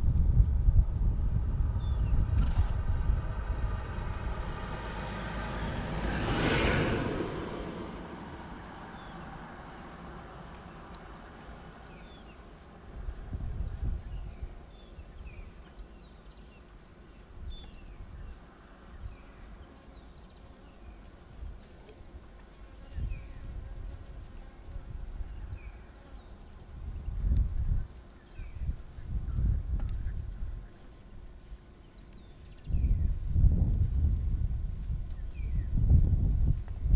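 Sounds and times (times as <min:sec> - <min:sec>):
low rumbling bumps: 0:00.0 - 0:07.6
insects droning: 0:00.0 - 0:36.9.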